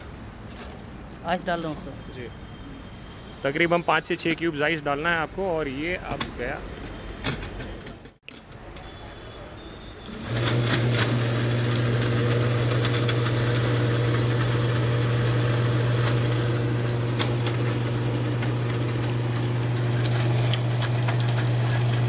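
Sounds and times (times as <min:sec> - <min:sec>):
mixer grinder humming: 0:10.1 - 0:22.0
ice clicking against steel jar: 0:15.8 - 0:22.0.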